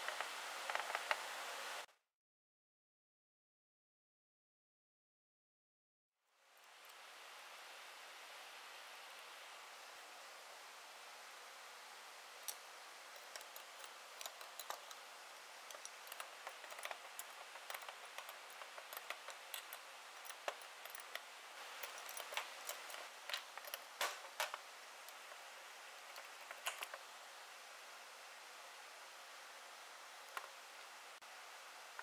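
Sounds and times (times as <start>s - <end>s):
wrenches clinking on metal parts: 15.7s - 24.4s.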